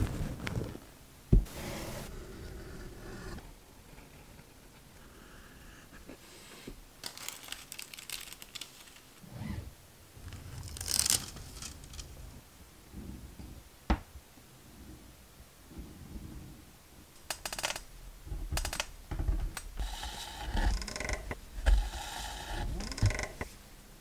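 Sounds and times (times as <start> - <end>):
foil crinkling: 7.0 - 9.2, 10.6 - 12.0.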